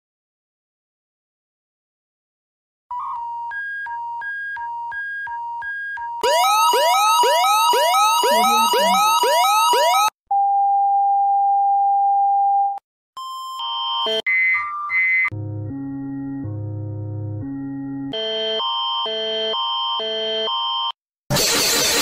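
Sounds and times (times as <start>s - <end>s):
siren whooping: 6.2s - 10.1s
steady alert tone: 6.2s - 10.1s.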